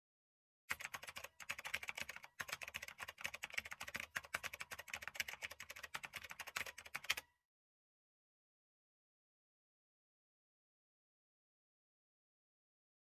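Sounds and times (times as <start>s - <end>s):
rapid keyboard typing: 0.7s - 7.3s.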